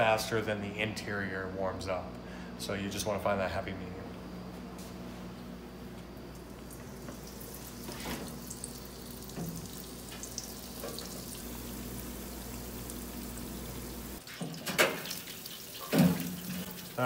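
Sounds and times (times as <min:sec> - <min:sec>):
steady low hum: 0:00.0 - 0:14.2
food sizzling in deep-fryer oil: 0:06.8 - 0:17.0.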